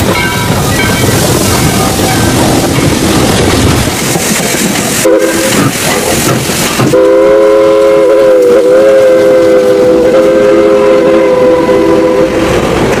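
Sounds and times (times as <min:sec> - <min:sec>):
rumble of passing train: 0:00.0 - 0:13.0
steam locomotive chime whistle: 0:05.0 - 0:05.7, 0:06.9 - 0:12.5.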